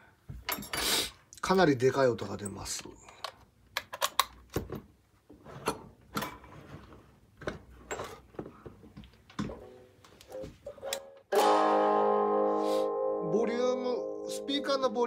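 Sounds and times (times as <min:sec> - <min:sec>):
overdriven electric guitar chord: 0:11.3 - 0:15.0.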